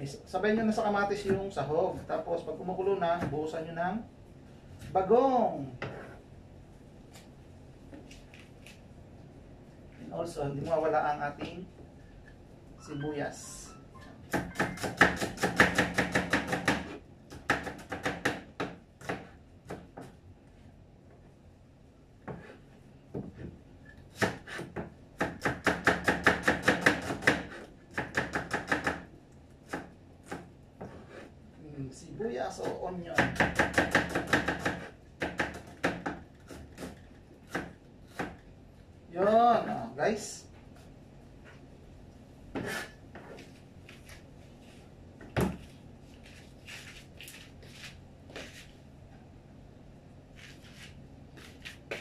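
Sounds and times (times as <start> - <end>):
cleaver chopping onion: 14.4 - 19.9, 24.2 - 29.1, 32.6 - 38.4.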